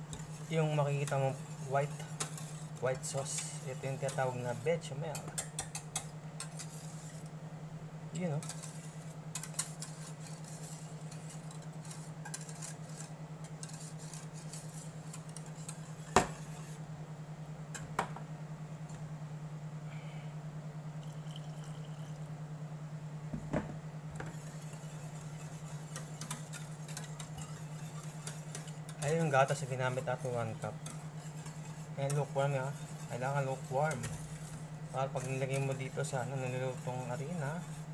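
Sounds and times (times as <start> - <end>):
whisk clicking and scraping in pan: 0.0 - 7.4, 8.1 - 16.8, 24.2 - 37.9
steady low hum: 0.0 - 37.9
whisk knocking on pan: 13.8 - 16.8, 23.3 - 37.9.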